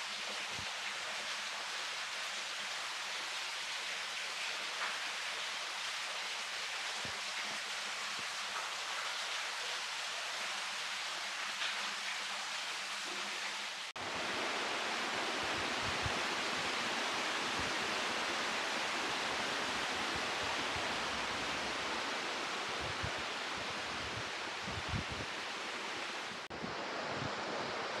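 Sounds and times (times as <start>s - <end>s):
waterfall rushing: 13.8s - 28.0s.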